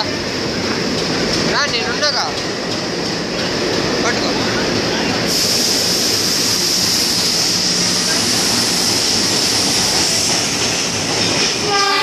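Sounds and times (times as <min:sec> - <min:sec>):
train rumble and rush: 0:00.0 - 0:12.0
train horn: 0:11.6 - 0:12.0.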